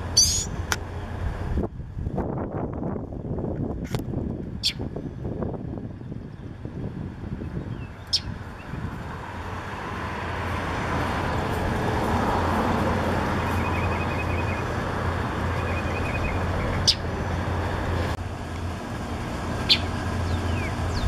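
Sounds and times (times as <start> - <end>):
road traffic rumble: 0.0 - 21.0
bird squeaks: 0.2 - 0.6, 4.6 - 4.8.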